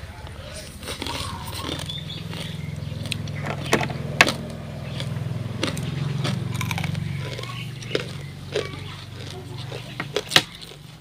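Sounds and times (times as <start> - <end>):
low motor hum: 0.0 - 11.0
people chewing food: 0.0 - 11.0
crunching clicks: 0.2 - 11.0.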